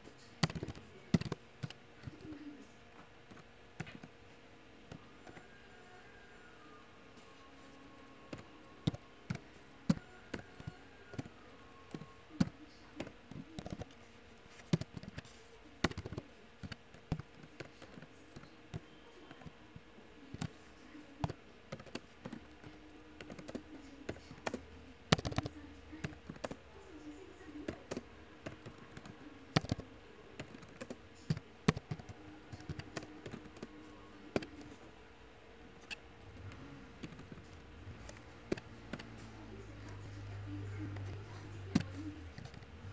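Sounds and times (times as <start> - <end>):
keyboard typing clicks: 0.4 - 2.3, 14.6 - 19.6, 21.2 - 26.6, 27.6 - 34.8.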